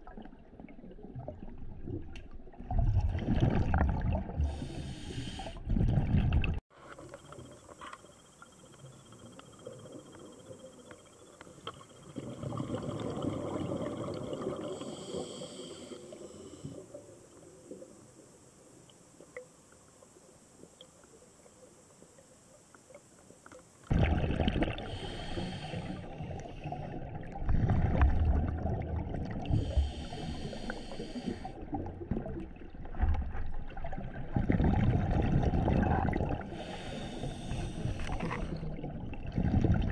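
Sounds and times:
underwater bubbling rumble: 0:00.0 - 0:05.0, 0:05.6 - 0:07.6, 0:08.9 - 0:15.4, 0:23.9 - 0:39.9
hissing regulator inhalations: 0:04.5 - 0:05.6, 0:14.6 - 0:17.0, 0:24.8 - 0:26.9, 0:29.4 - 0:31.6, 0:36.5 - 0:38.6.

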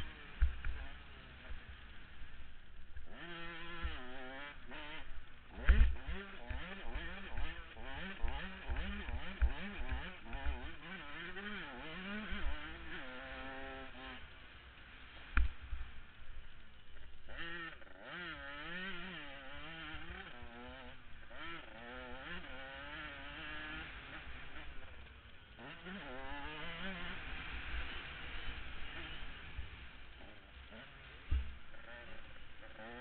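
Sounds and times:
dirt bike engine revving: 0:00.0 - 0:33.0
low thumps and buffeting: 0:31.2 - 0:31.8.

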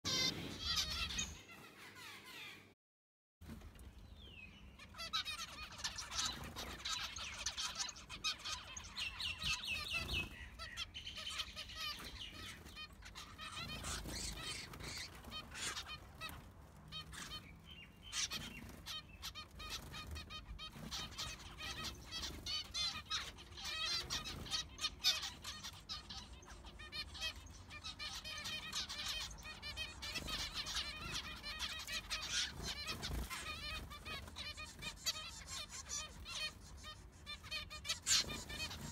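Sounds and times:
finches chirping: 0:00.1 - 0:02.7, 0:04.0 - 0:38.9.

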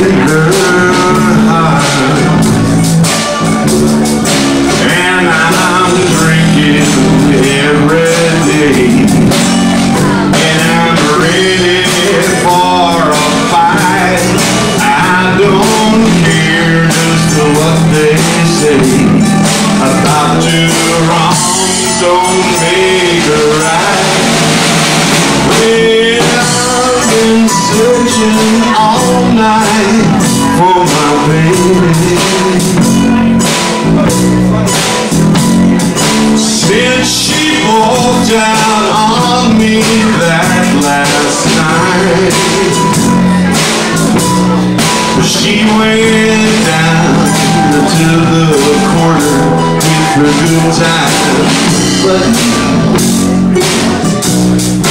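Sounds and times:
man singing into microphone: 0:00.0 - 0:03.7, 0:04.7 - 0:54.9
live band playing slow song: 0:00.0 - 0:54.9.

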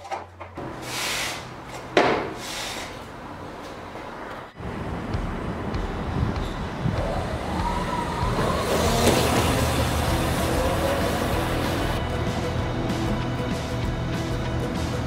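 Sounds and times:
electric scooter motor whine: 0:06.8 - 0:12.2.

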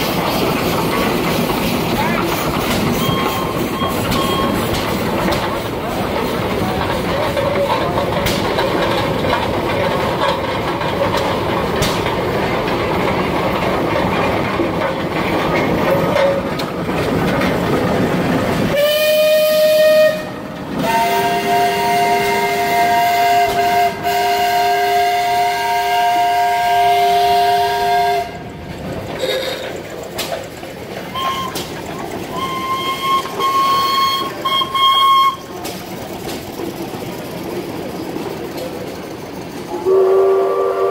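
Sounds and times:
steam traction engine clatter: 0:00.0 - 0:40.9
steam whistle blasts: 0:18.7 - 0:28.4, 0:31.1 - 0:31.6, 0:32.3 - 0:35.5, 0:39.7 - 0:40.9.

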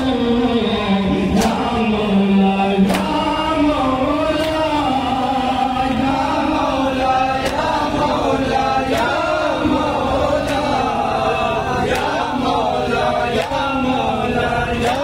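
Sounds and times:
lead voice over microphone: 0:00.0 - 0:06.5
men chanting in unison: 0:00.0 - 0:15.0
chest-beating slaps: 0:01.4 - 0:01.7, 0:02.8 - 0:03.2, 0:07.4 - 0:07.8.

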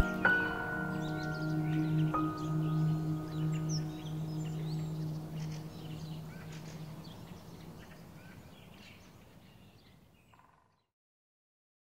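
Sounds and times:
low sustained ringing tone: 0:00.0 - 0:07.4
birds chirping: 0:00.0 - 0:10.4.

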